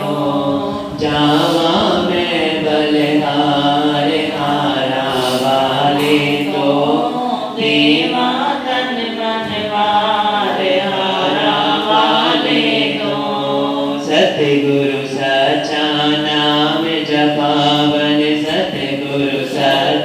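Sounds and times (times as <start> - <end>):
voices chanting devotional song: 0.0 - 20.0.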